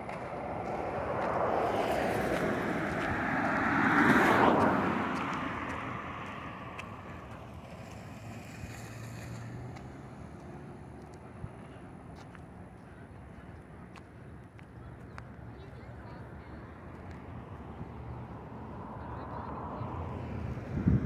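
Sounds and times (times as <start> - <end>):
vehicle driving past: 0.0 - 12.0.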